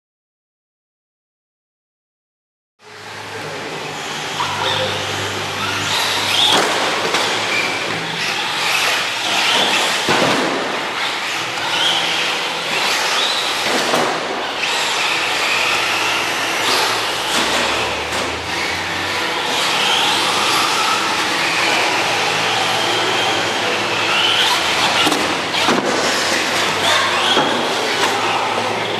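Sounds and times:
electric motor whining: 3.0s - 10.1s, 14.5s - 28.9s.

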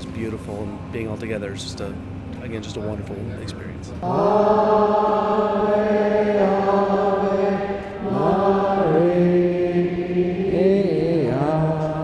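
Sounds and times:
slow liturgical chant: 4.0s - 12.0s.

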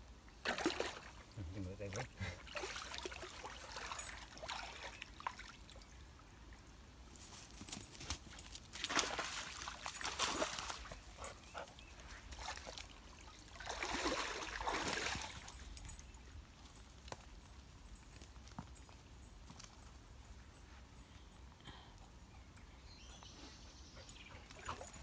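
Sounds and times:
dog splashing in water: 0.4s - 1.1s, 2.4s - 5.6s, 8.7s - 11.5s, 12.1s - 15.6s
water trickling: 0.4s - 6.7s.

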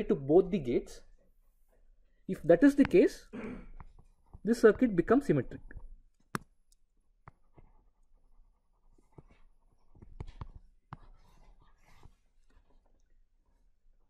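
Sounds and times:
stylus scratching on tablet screen: 7.2s - 12.8s.

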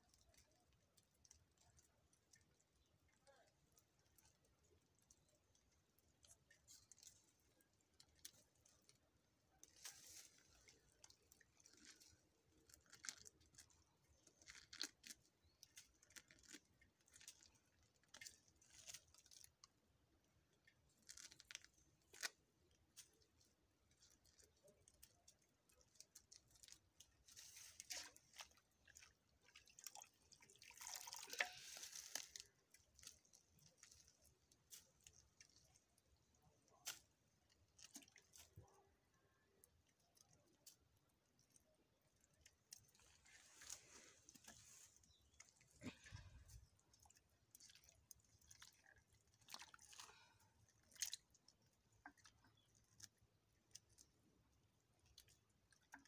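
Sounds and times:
rustling: 42.7s - 46.9s.

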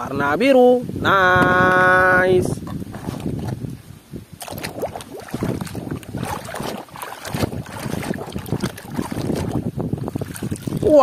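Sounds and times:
water sloshing in a tub: 2.6s - 3.7s, 4.4s - 11.0s.

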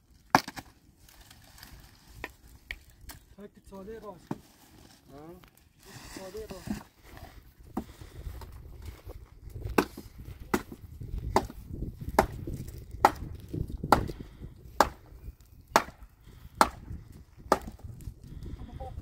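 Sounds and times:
firewood being chopped: 0.2s - 0.8s, 2.2s - 3.3s, 4.2s - 4.5s, 7.7s - 8.6s, 9.5s - 18.1s.

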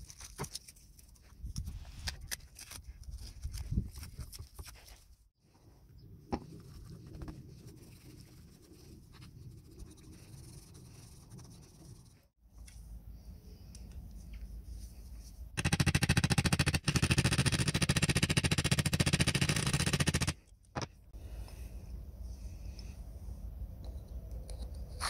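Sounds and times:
low steady rumble: 21.1s - 25.0s.

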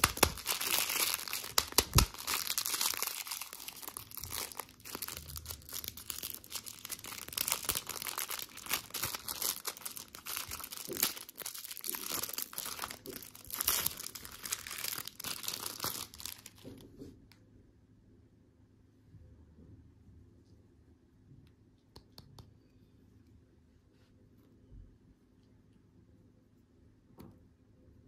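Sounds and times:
plastic wrapper crinkling: 0.0s - 16.8s.

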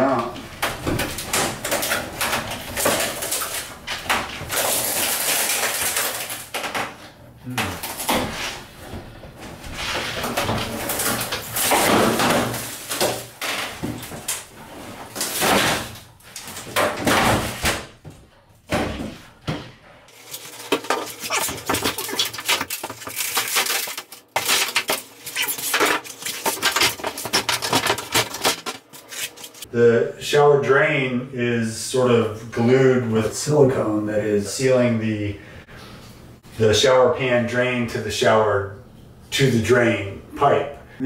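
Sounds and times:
wall panels scraping and knocking: 0.0s - 29.7s.

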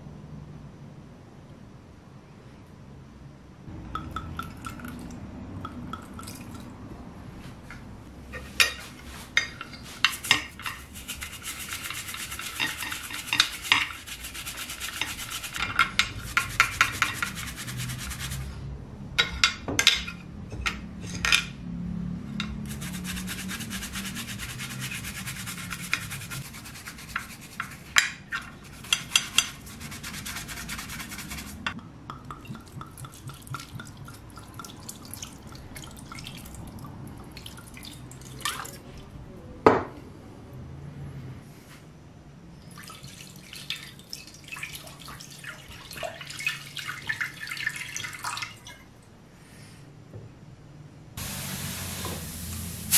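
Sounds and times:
toothbrush scrubbing: 9.8s - 18.5s, 22.7s - 31.7s, 32.3s - 35.9s
grips knocking against glass: 31.8s - 34.7s.

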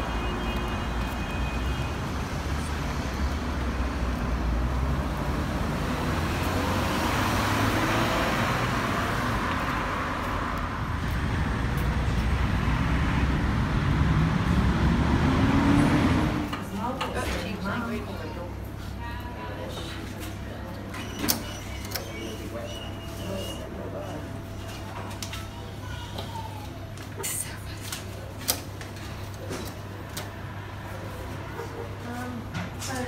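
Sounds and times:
cars passing: 0.0s - 19.0s
heavy vehicle engine accelerating: 2.1s - 16.6s.

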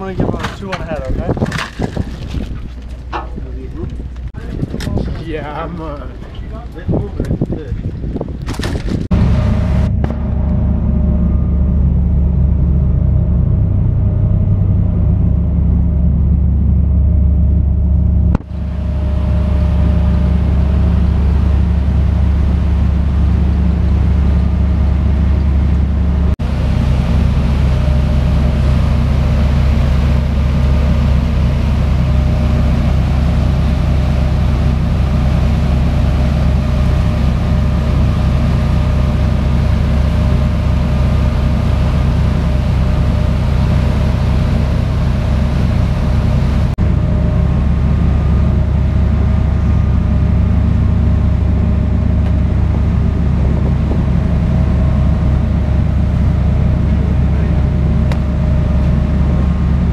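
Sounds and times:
boat engine droning: 0.0s - 59.9s
rush of boat wake: 9.1s - 11.6s, 18.4s - 59.9s.

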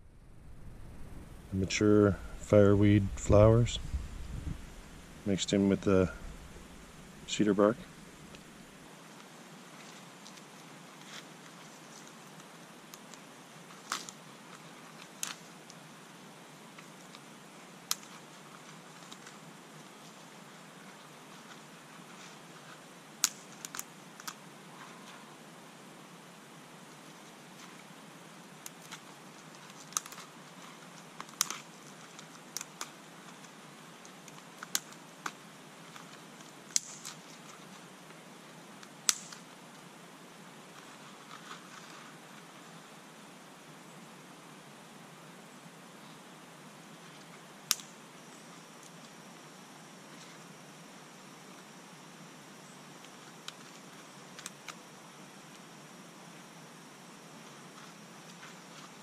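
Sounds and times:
dry bark crackling: 0.0s - 25.3s, 26.8s - 42.6s, 52.9s - 55.7s
faint steady hiss: 0.0s - 59.0s.

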